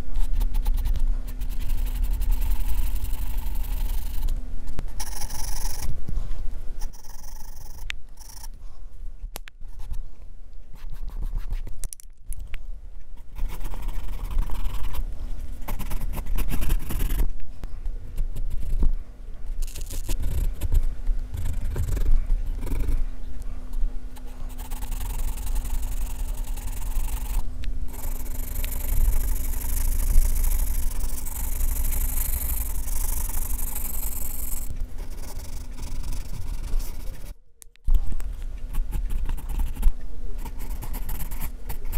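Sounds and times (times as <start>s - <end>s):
pencil scratching on paper: 0.0s - 5.9s, 10.8s - 11.7s, 13.2s - 15.0s, 15.6s - 17.3s, 19.7s - 23.0s, 24.2s - 37.3s, 38.7s - 41.9s.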